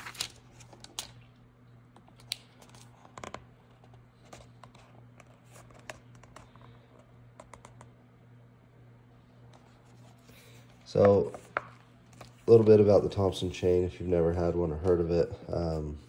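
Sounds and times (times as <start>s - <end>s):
paper rustling: 0.0s - 1.2s
low steady hum: 0.0s - 16.0s.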